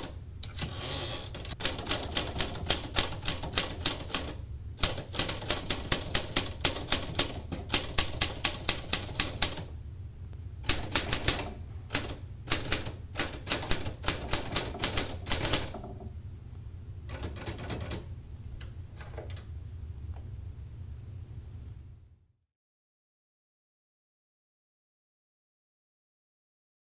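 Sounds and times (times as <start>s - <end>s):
typewriter key strikes: 1.3s - 9.7s, 10.6s - 15.9s.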